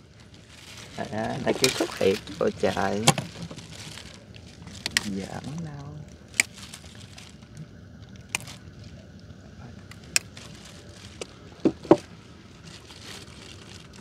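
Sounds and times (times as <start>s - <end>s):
faint background noise: 0.0s - 14.0s.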